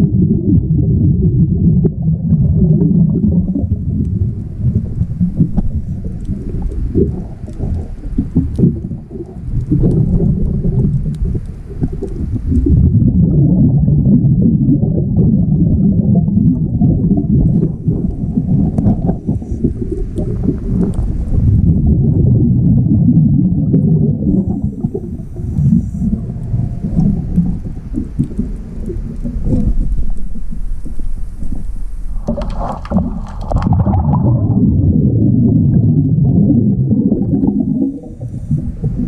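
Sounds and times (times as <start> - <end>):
exhaled bubbles rumbling underwater: 0.0 - 39.0.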